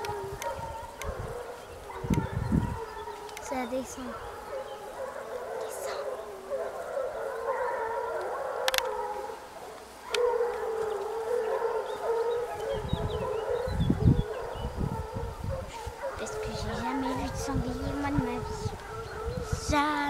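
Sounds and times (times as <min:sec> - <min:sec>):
hounds baying: 0:00.0 - 0:20.0
sharp clicks: 0:08.2 - 0:09.0.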